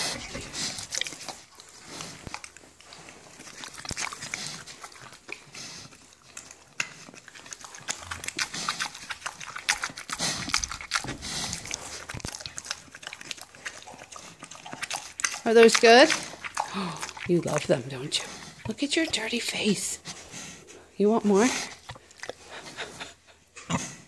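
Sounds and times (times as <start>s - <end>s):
pig chewing and smacking: 0.0s - 24.0s.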